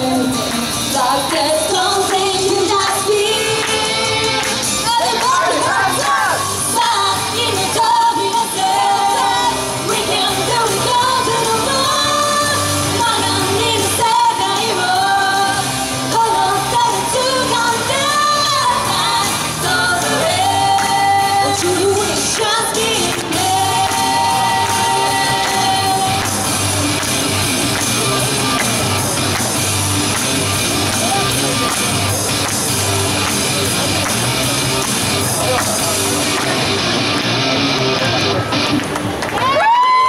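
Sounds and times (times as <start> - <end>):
women singing: 0.0 - 26.2
pop backing music: 0.0 - 40.0.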